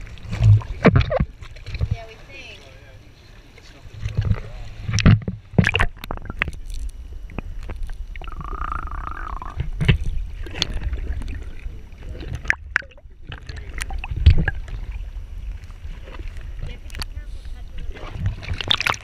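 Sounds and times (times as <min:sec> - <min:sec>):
seawater sloshing and gurgling: 0:00.0 - 0:19.0
muffled low rumble: 0:03.7 - 0:18.7
muffled wavering tone: 0:04.0 - 0:19.0
water splashing against housing: 0:17.8 - 0:19.0.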